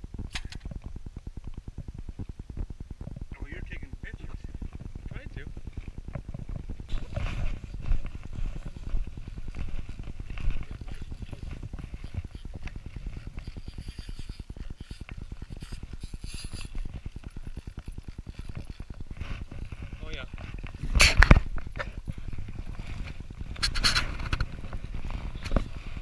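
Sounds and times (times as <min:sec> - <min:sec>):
fishing reel ticking: 0:08.8 - 0:20.3.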